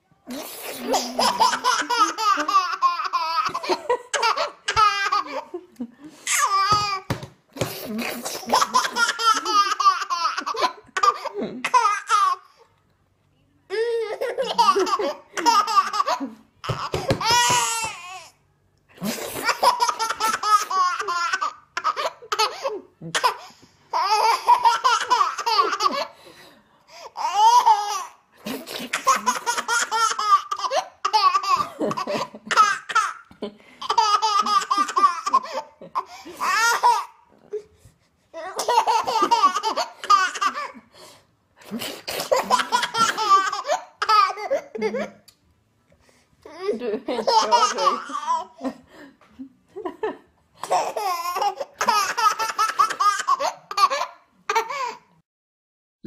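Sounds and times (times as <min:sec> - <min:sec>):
baby laughing: 0:00.8 - 0:05.5, 0:06.2 - 0:12.5, 0:13.8 - 0:18.3, 0:19.0 - 0:26.2, 0:27.2 - 0:37.2, 0:38.4 - 0:40.8, 0:42.3 - 0:45.2, 0:46.5 - 0:48.6, 0:50.6 - 0:55.0.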